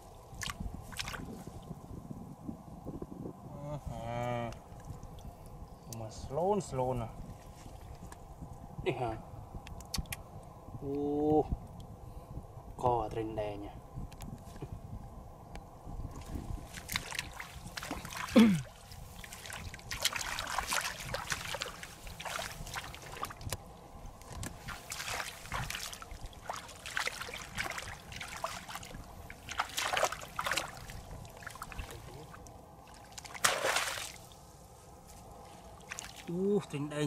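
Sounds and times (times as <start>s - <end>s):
strong splash: 16.2s - 23.4s, 24.6s - 34.3s
hands splashing in muddy water: 16.7s - 23.4s, 24.6s - 34.2s.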